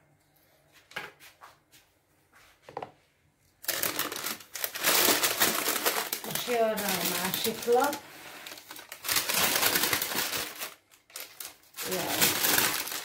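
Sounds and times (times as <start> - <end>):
crinkling and rustling: 2.6 - 13.0.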